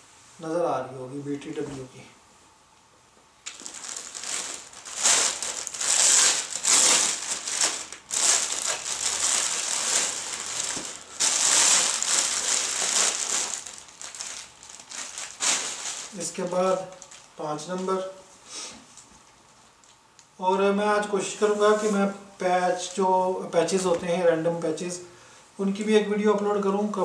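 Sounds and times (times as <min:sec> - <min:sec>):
cotton fabric crumpling and rustling: 0:03.5 - 0:17.3.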